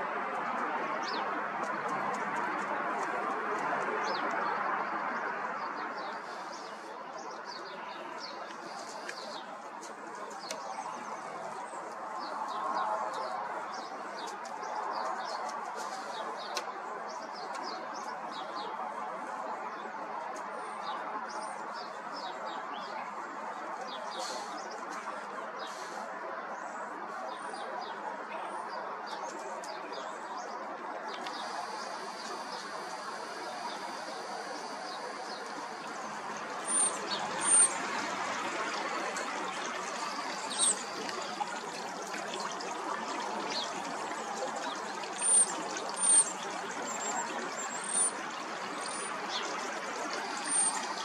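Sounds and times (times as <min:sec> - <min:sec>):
small birds chirping: 0:31.1 - 0:38.4, 0:39.1 - 0:51.0.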